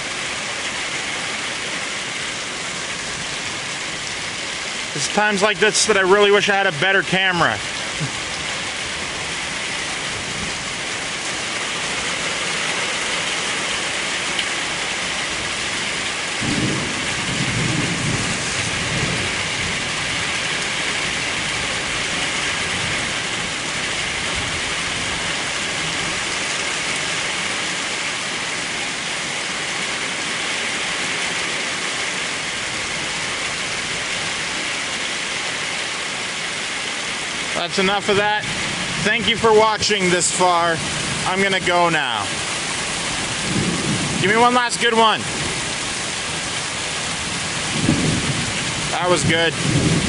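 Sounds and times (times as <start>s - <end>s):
steady rainfall: 0.0s - 50.0s
low rumble of thunder: 15.2s - 26.3s, 42.3s - 44.3s, 45.2s - 50.0s.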